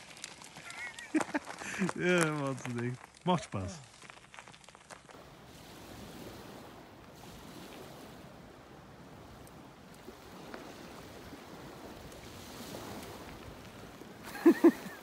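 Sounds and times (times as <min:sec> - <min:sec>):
wind rushing on microphone: 0:05.2 - 0:15.0.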